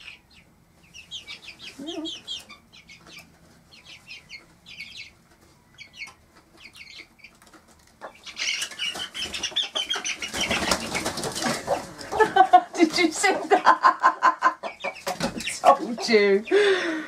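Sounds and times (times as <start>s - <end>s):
chicks peeping: 0.0s - 17.0s
wings flapping: 8.5s - 12.2s.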